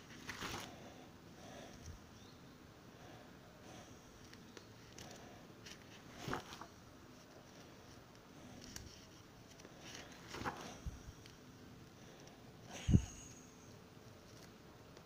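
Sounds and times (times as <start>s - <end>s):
plastic pages rustling: 0.0s - 0.7s, 4.2s - 11.4s, 14.2s - 14.6s.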